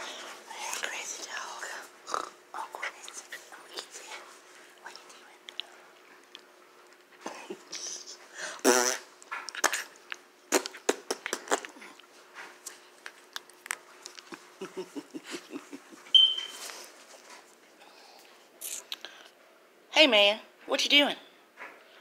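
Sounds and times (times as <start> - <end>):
dog mouth clicks and snuffles: 9.2 - 11.8
sharp high squeak: 16.1 - 16.6.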